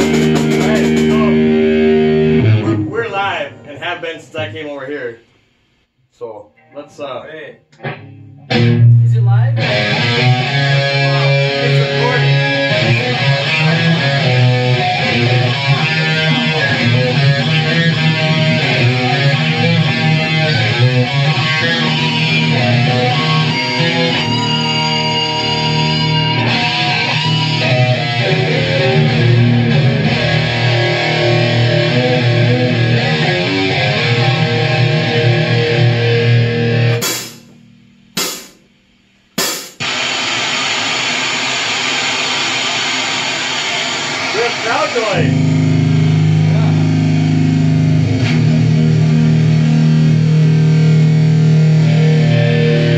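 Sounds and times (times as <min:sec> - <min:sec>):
heavy rock band playing: 0:00.0 - 0:04.6, 0:07.9 - 0:38.6, 0:39.4 - 0:40.2, 0:44.2 - 0:52.9
steady noise: 0:00.0 - 0:05.9, 0:36.9 - 0:47.2.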